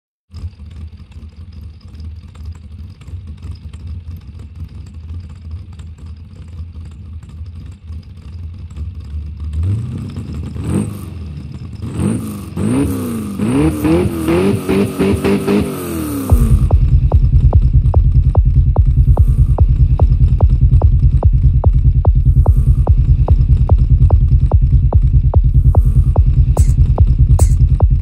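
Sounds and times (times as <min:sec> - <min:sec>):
engine rumbling and revving: 0:07.2 - 0:28.0.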